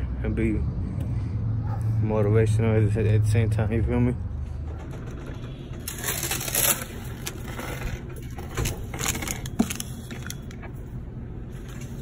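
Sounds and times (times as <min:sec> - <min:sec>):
money rustling in metal tray: 0:04.8 - 0:10.5.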